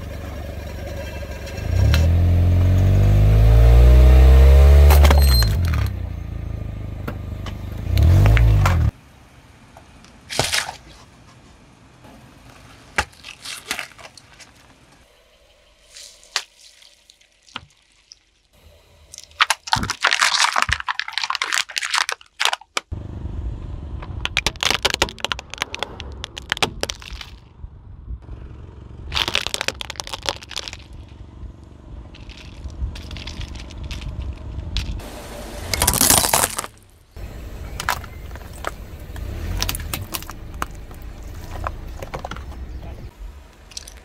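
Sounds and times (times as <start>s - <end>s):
car rumbling: 0.0s - 16.4s, 22.8s - 44.0s
tyre crushing brittle objects: 12.5s - 14.7s, 19.1s - 22.9s, 24.3s - 27.5s, 29.1s - 31.2s, 32.2s - 35.0s, 35.7s - 36.8s, 37.7s - 42.6s.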